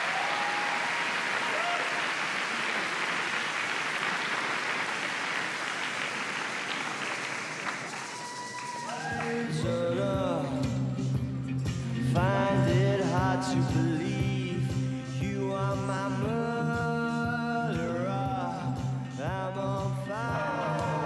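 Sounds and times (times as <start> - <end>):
large audience applauding: 0.0 - 9.8
music: 8.7 - 21.0.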